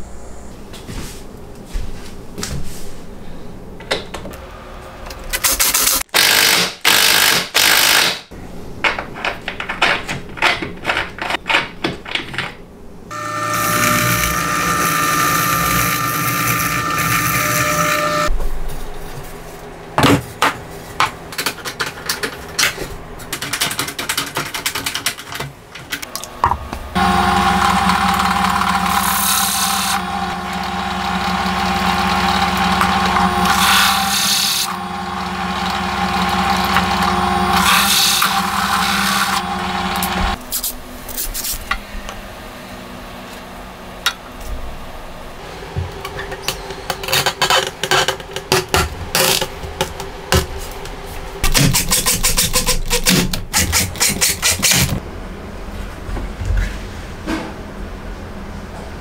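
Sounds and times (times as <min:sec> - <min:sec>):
drill press boring into wood: 0:13.1 - 0:18.3, 0:27.0 - 0:40.4.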